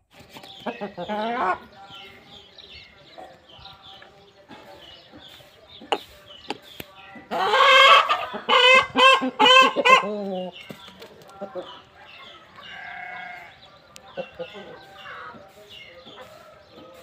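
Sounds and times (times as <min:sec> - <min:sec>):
rooster crowing: 0:12.0 - 0:13.5.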